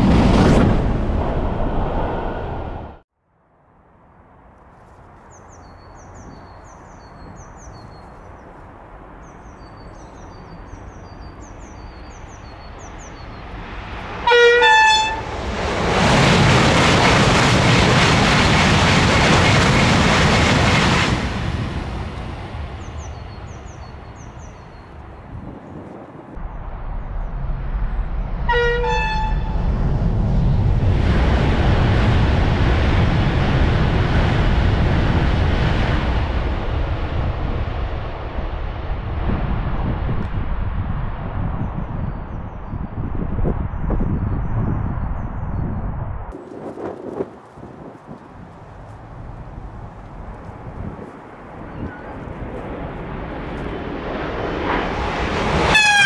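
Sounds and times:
high-speed train passing: 0.0 - 3.0, 3.6 - 42.0, 46.2 - 56.0
birds chirping: 5.2 - 13.6, 22.7 - 25.9, 48.2 - 52.8
two-note train horn: 14.2 - 15.3, 28.5 - 29.6, 55.7 - 56.0.

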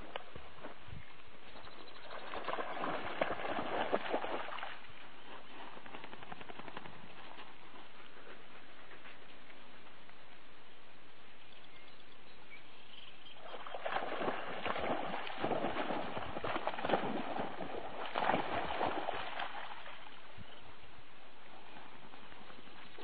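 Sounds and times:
water splashing and sloshing: 2.0 - 6.6, 13.4 - 20.4.

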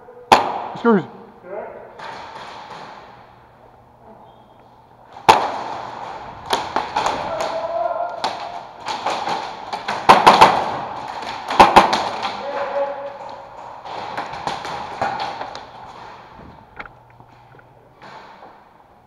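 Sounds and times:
airsoft gun shots: 0.3 - 0.8, 5.2 - 7.6, 8.2 - 12.4
pellets cracking against plywood: 5.1 - 17.3.

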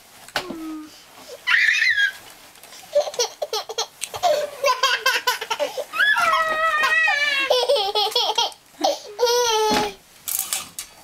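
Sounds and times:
child squealing: 1.4 - 2.2, 5.9 - 7.5
child giggling: 3.0 - 10.0.

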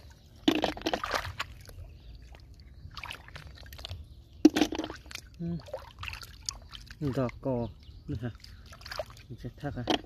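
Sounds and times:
hands splashing in muddy water: 0.0 - 1.8, 8.3 - 9.4.

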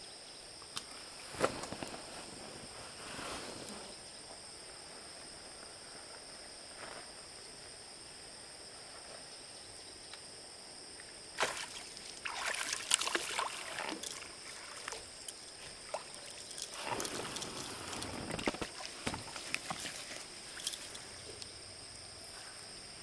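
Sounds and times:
water splashing and sloshing: 11.4 - 21.2.

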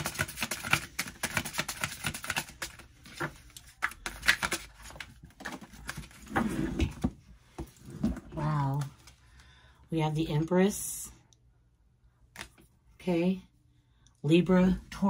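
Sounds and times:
cards being shuffled: 0.0 - 6.2.

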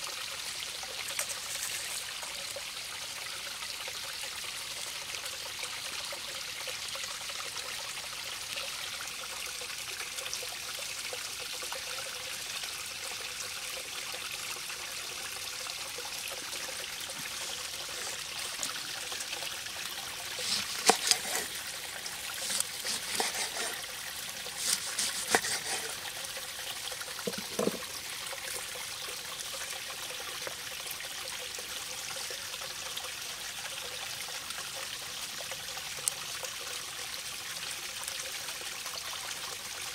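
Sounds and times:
stream trickling: 0.0 - 39.9
knife cutting fish on board: 20.4 - 21.6, 22.4 - 23.8, 24.6 - 26.0.

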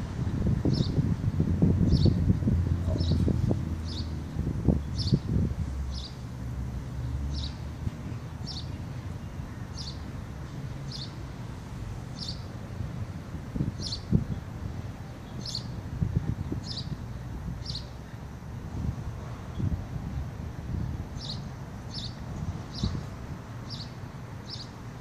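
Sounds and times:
wind rumble on microphone: 0.0 - 24.6
small bird chirping: 2.8 - 3.3.

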